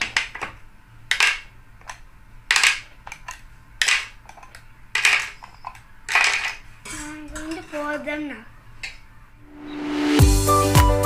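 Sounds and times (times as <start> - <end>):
plastic mould parts clacking: 0.0 - 7.8.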